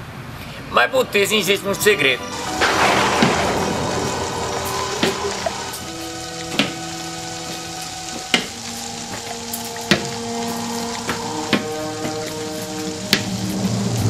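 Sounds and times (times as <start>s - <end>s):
slow sustained music notes: 1.0s - 14.0s
crackling hiss: 1.2s - 14.0s
sharp percussive hits: 2.3s - 6.8s.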